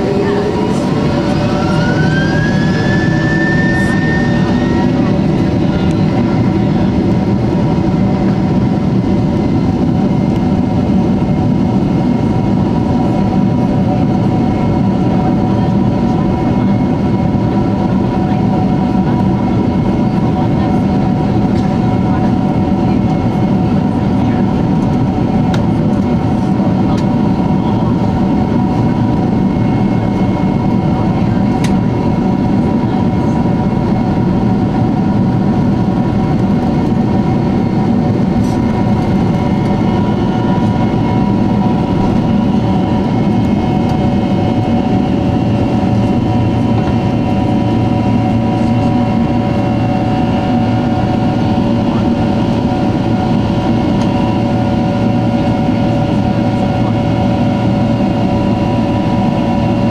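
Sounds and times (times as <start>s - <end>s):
whining fan tones: 0.0s - 10.4s
jet engine roar: 0.0s - 59.9s.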